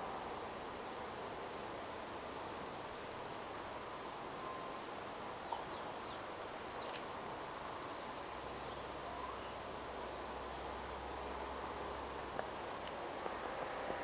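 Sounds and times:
background hiss: 0.0s - 14.0s.

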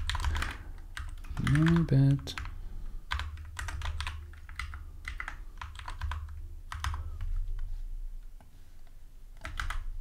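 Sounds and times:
typing on computer keyboard: 0.0s - 7.3s, 9.4s - 10.0s.

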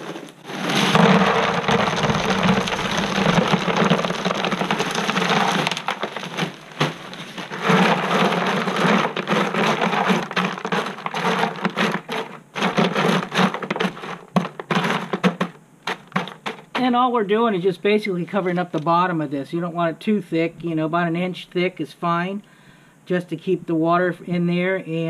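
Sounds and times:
rocks clicking spread by hand: 0.0s - 16.9s
stones rattling into plastic: 0.0s - 16.9s.

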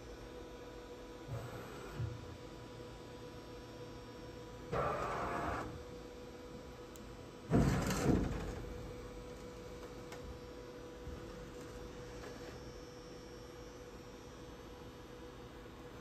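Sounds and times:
machine electrical hum: 0.0s - 16.0s
sliding rumble with knocks: 7.5s - 8.7s.

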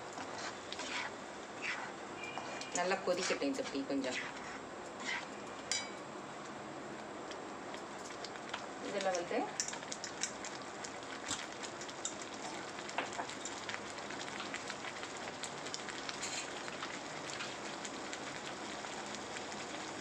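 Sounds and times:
sauce simmering and popping: 0.0s - 5.8s, 6.4s - 20.0s.

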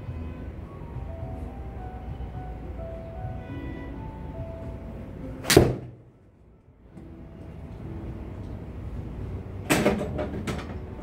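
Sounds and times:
golf club striking ball: 5.4s - 6.0s.

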